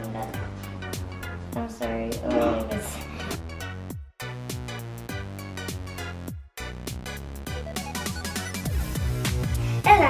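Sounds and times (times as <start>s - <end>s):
electronic music with drum-machine beat: 2.2s - 10.0s.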